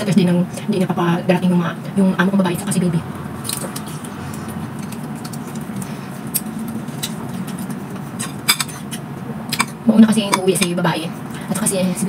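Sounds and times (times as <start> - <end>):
low steady hum: 0.0 - 12.0
chewing and mouth sounds: 3.4 - 9.8.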